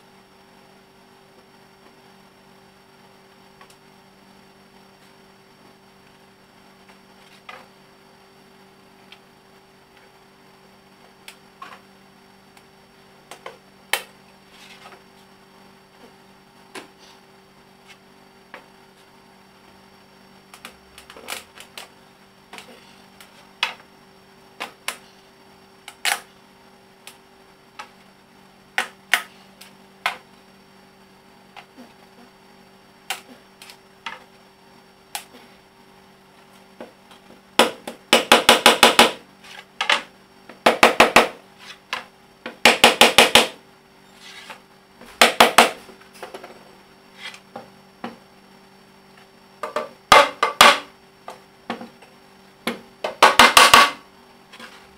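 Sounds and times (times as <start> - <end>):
low electrical hum: 0.0 - 54.9
wooden pieces knocking together: 52.7 - 54.0.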